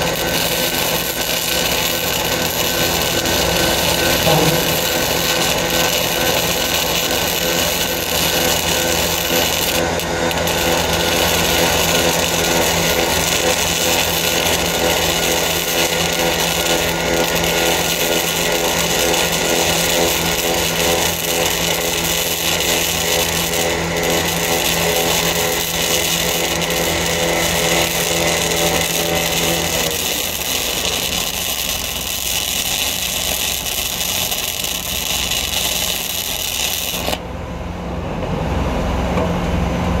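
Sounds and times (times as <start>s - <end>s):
welding arc crackling: 0.0s - 37.2s.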